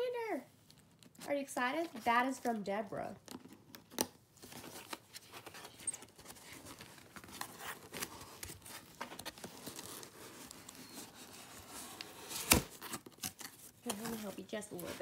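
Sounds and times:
cardboard box scratched and rustled: 5.3 - 15.0.

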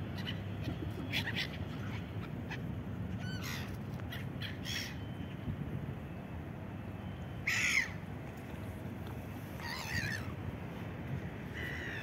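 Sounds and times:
gulls calling: 7.4 - 8.1, 9.6 - 10.5, 11.4 - 12.0.

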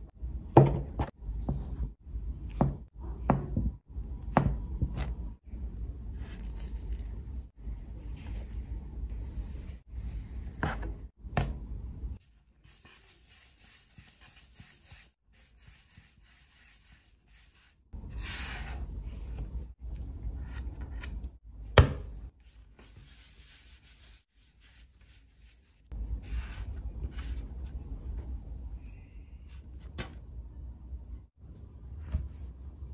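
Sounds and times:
dough rubbing on work surface: 12.6 - 17.8, 22.5 - 27.3.

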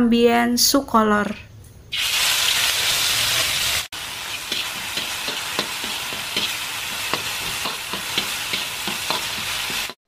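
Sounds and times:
paste sizzling in hot oil: 1.9 - 10.0
metal spatula scraping a wok: 3.1 - 10.0.

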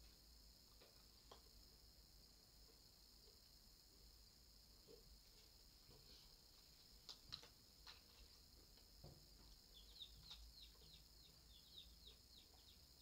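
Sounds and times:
faint bird chirping: 9.2 - 13.0.

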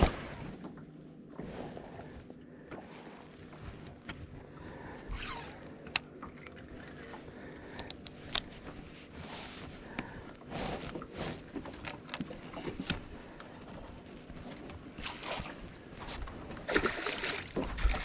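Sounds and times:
fishing reel clicking and scraping: 5.1 - 8.5.

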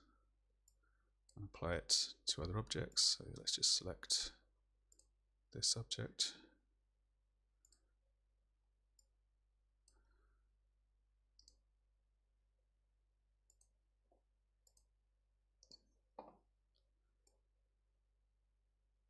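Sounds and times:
computer mouse clicks: 11.4 - 11.6, 14.6 - 14.9.

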